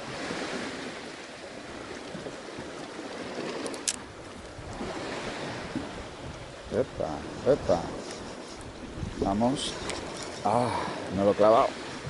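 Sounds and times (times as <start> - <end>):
sea water lapping around boat: 0.0 - 12.0
sharp click: 3.6 - 4.0.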